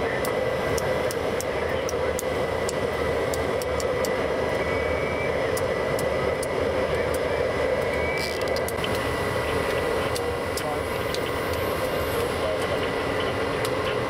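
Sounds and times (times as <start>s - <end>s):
jet engines running: 0.0s - 14.0s.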